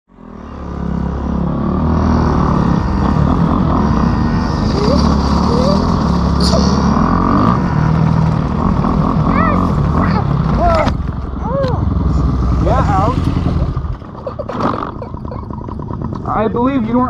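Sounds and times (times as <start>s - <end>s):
dirt bike engine running: 0.3s - 17.0s.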